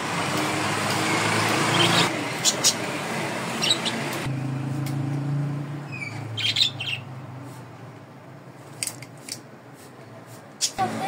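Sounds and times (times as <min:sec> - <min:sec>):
birds chirping: 0:01.6 - 0:04.3, 0:05.9 - 0:07.2.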